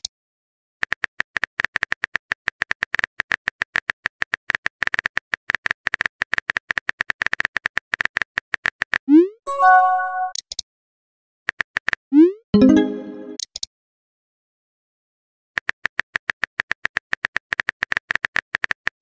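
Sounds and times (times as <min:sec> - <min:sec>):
message sent chime: 0:09.5 - 0:10.4, 0:12.6 - 0:13.4.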